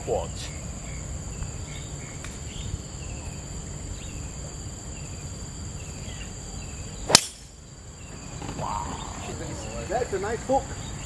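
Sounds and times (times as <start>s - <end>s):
high insect drone: 0.0s - 11.0s
golf club striking ball: 7.1s - 7.6s.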